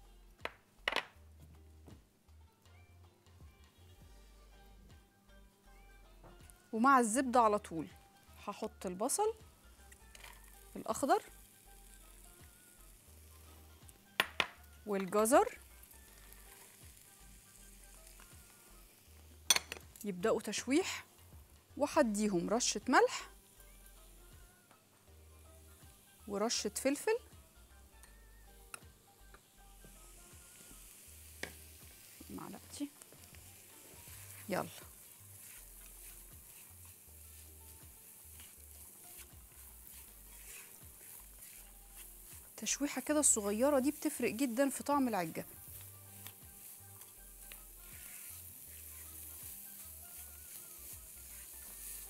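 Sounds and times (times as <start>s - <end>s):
butter sizzling in frying pan: 8.8s - 52.0s
spatula scraping pan: 33.2s - 42.3s, 45.5s - 52.0s.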